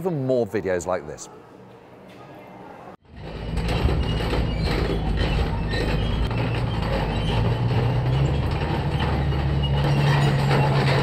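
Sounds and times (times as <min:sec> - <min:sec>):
tank engine and tracks: 0:03.1 - 0:11.0.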